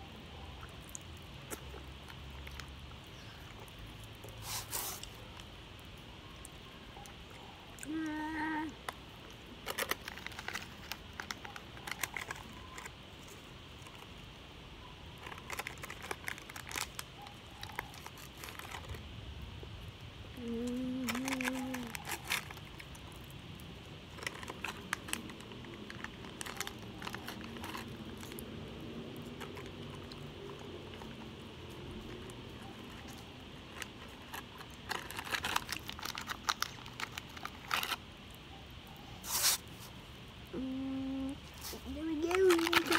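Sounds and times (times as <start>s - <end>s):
person humming: 7.8s - 8.8s, 20.4s - 21.9s, 40.5s - 42.9s
plastic packet crinkling: 9.2s - 14.2s, 15.2s - 19.0s, 20.9s - 23.4s, 24.1s - 28.5s, 31.9s - 38.2s, 41.6s - 42.9s.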